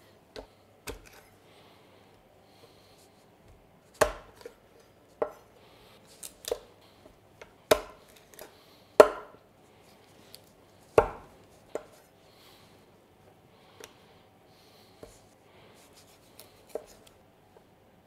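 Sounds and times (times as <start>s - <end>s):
knife chopping on wooden block: 4.0s - 4.5s, 7.7s - 9.4s, 11.0s - 12.0s.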